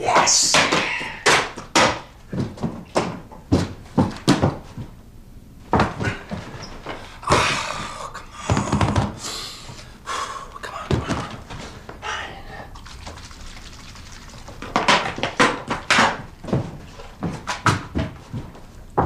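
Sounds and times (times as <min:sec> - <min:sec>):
soft longer noisy sounds: 0:00.0 - 0:17.4
knocks and thumps: 0:00.1 - 0:05.0, 0:05.7 - 0:07.5, 0:08.4 - 0:09.2, 0:10.9 - 0:11.8.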